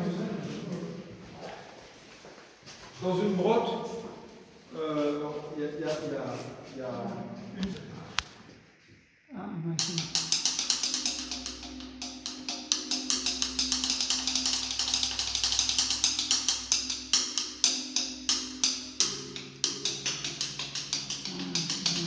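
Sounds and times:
sticks striking ringing stone: 0:09.8 - 0:22.0.

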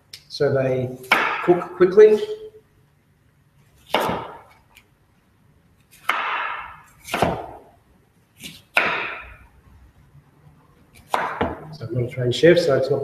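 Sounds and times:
knife chopping on wooden board: 0:01.0 - 0:01.6, 0:03.9 - 0:04.6, 0:06.0 - 0:07.7, 0:08.4 - 0:09.4, 0:11.0 - 0:11.7.

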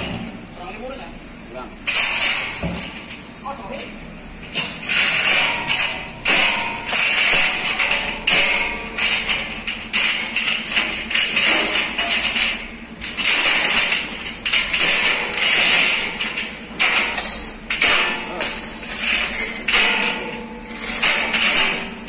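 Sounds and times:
chain hoist chains rattling: 0:03.8 - 0:22.0.

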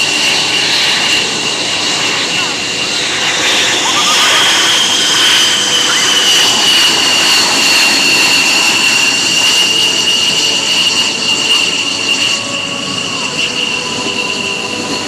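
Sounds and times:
jet engine whine and roar: 0:00.0 - 0:15.0.

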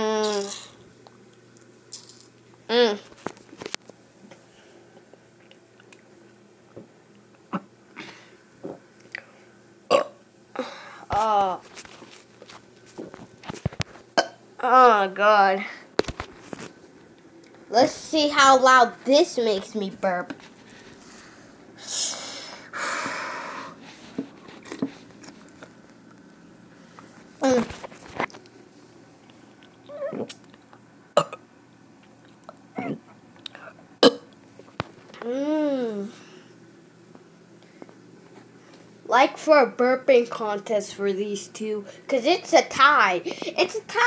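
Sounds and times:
person swallowing and gulping: 0:07.4 - 0:07.7.

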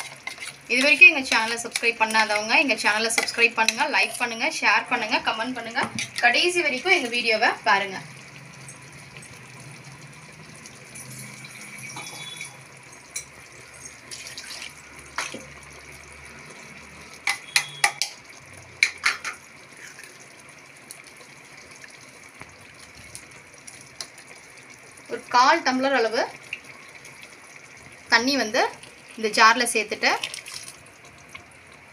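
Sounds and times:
water-like kitchen hiss: 0:10.1 - 0:17.9, 0:18.6 - 0:23.2.

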